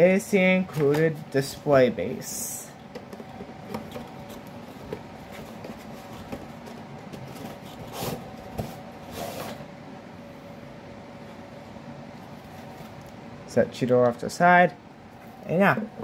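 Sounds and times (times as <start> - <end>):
faint room hum: 0.0 - 16.0.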